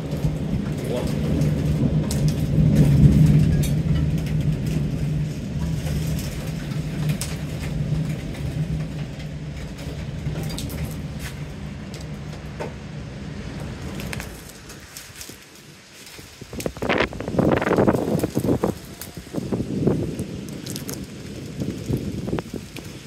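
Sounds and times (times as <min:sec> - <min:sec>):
thunder rolling: 0:00.0 - 0:15.2, 0:16.2 - 0:23.0
rain: 0:00.0 - 0:23.0.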